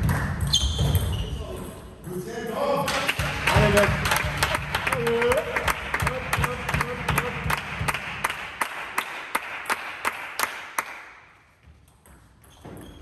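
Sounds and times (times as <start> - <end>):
person clapping steadily: 2.9 - 11.1
audience applause: 3.0 - 11.0.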